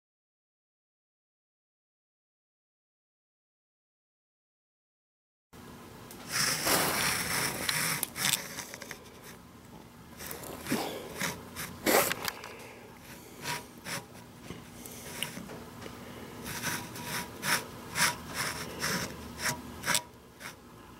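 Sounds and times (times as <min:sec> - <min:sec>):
caliper scraping on metal: 0:06.3 - 0:09.4, 0:10.2 - 0:12.3, 0:13.0 - 0:15.5, 0:16.4 - 0:20.6.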